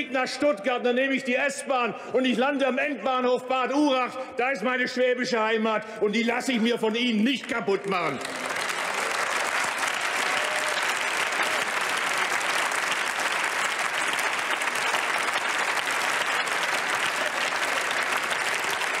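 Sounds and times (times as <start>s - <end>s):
large crowd applauding: 8.0s - 19.0s.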